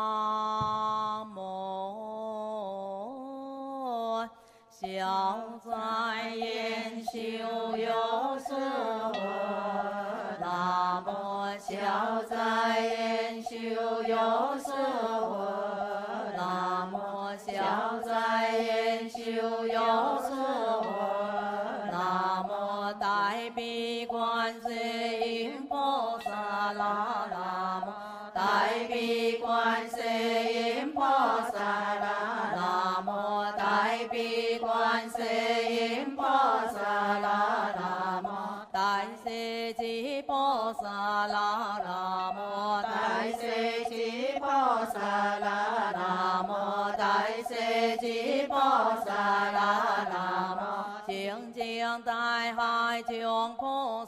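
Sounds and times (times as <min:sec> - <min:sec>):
group chanting in unison: 0:06.4 - 0:23.4, 0:24.1 - 0:39.2, 0:41.8 - 0:51.3.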